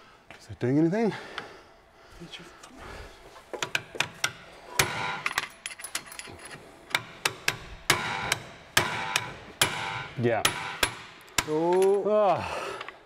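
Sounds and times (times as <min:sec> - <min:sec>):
hammer striking steel tool: 0:06.9 - 0:11.8.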